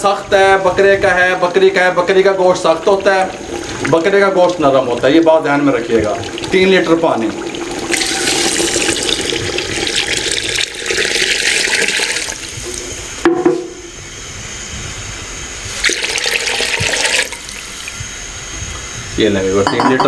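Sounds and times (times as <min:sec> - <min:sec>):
water pouring into a pot: 0:00.0 - 0:12.9, 0:15.7 - 0:18.0.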